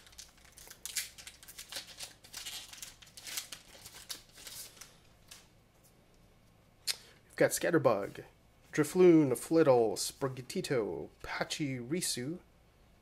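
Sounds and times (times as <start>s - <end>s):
foil wrapper crinkling and tearing: 0.0s - 5.5s.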